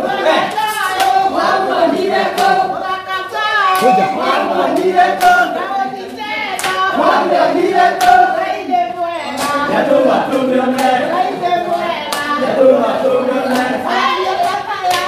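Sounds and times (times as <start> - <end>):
group of people singing: 0.0 - 15.0
hand claps: 0.5 - 1.2, 2.3 - 2.6, 3.7 - 5.5, 6.5 - 6.9, 8.0 - 8.3, 9.4 - 9.6, 10.2 - 11.1, 12.1 - 12.4, 13.5 - 13.8, 14.4 - 15.0.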